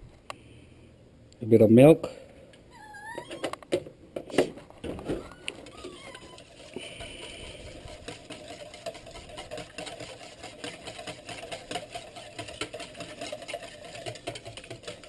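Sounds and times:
whisk beating in metal bowl: 5.6s - 15.0s.

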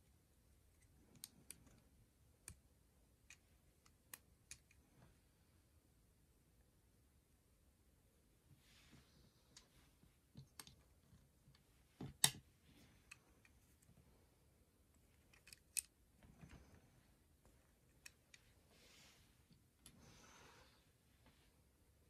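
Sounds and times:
plastic bricks clicking: 15.3s - 15.9s.

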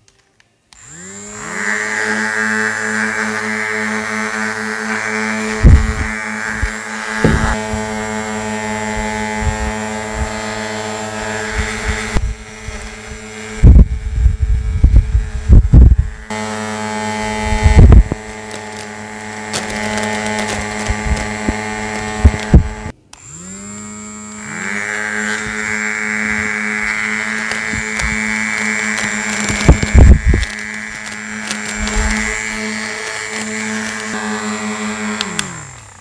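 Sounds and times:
handheld fan motors whining: 0.7s - 36.0s.

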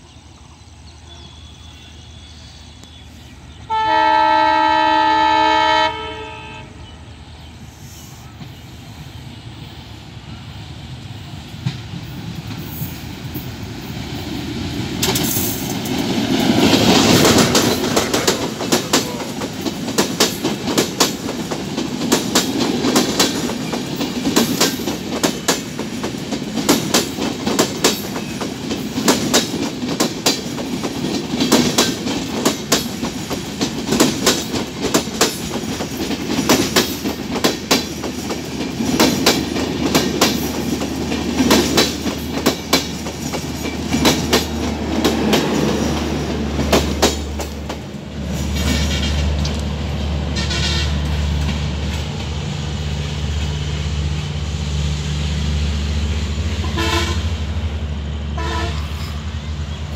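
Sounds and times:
train rumble: 0.0s - 59.9s
train wheels clattering: 11.2s - 52.5s.

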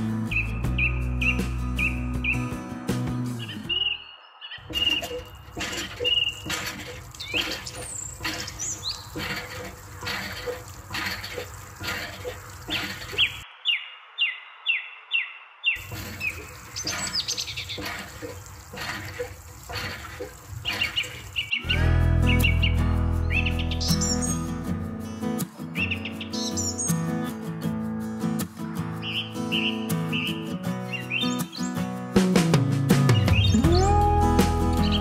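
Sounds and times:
birds chirping: 0.2s - 2.6s, 3.2s - 27.2s, 29.0s - 31.9s, 33.0s - 35.0s
water trickling: 4.6s - 13.4s, 15.8s - 21.7s.

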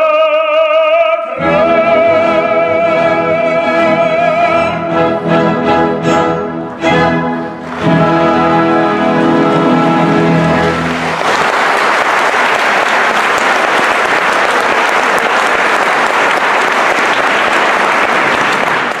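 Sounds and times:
audience applauding: 9.3s - 19.0s.

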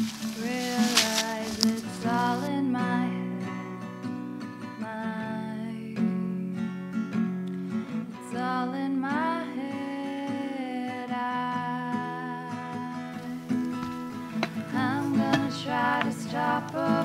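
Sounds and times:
person singing: 0.0s - 3.7s, 8.2s - 13.6s, 14.5s - 17.0s
strummed acoustic guitar: 0.0s - 17.0s.

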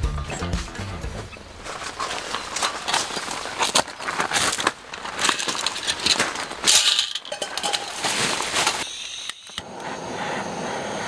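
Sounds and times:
charcoal and grill grate clinking: 1.6s - 9.6s
gas torch hissing: 8.8s - 11.0s.

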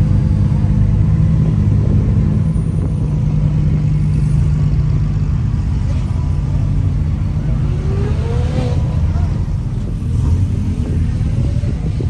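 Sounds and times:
car engine running: 0.0s - 12.0s.

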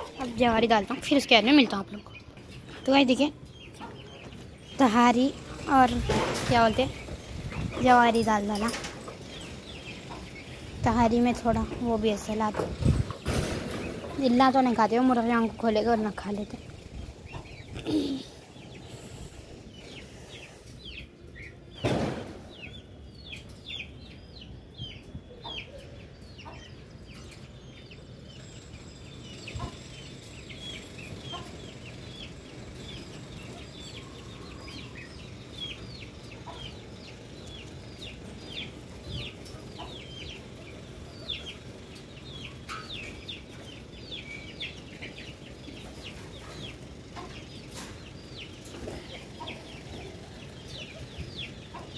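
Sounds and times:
birds chirping and clucking: 0.0s - 51.9s
loud thump: 21.8s - 22.4s.

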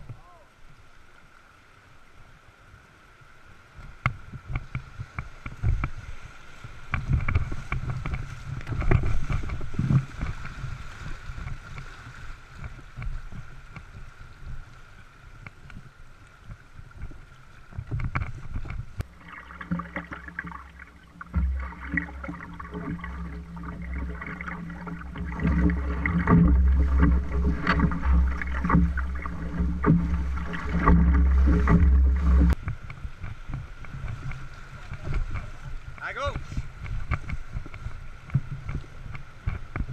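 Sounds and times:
paddle strokes: 3.2s - 39.9s
knocks against canoe hull: 17.9s - 34.0s
whitewater rushing: 19.0s - 32.6s.

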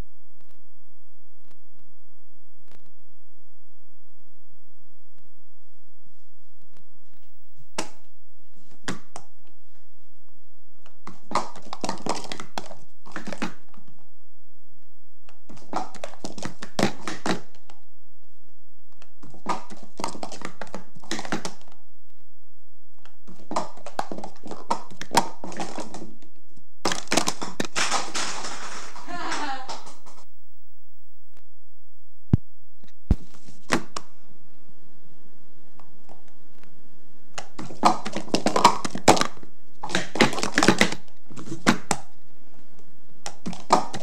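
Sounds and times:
plastic cups clattering on table: 11.0s - 13.9s, 15.4s - 17.8s, 19.1s - 21.7s, 23.2s - 26.2s, 26.8s - 30.3s, 37.4s - 42.1s, 43.3s - 44.0s.

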